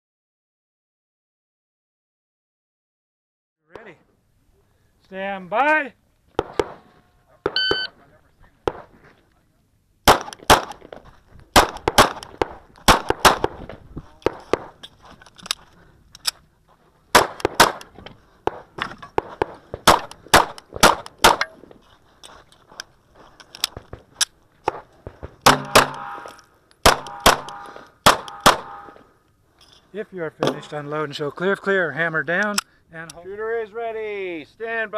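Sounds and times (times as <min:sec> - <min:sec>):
pistol shots: 0:10.0 - 0:10.8, 0:11.6 - 0:13.6, 0:17.1 - 0:17.9, 0:19.8 - 0:21.5, 0:25.4 - 0:29.0
steel target ringing: 0:25.5 - 0:29.0.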